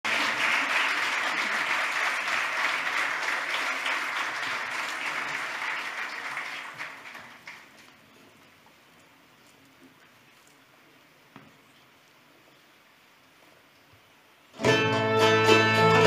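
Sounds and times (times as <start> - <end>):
large audience applauding: 0.0 - 7.8.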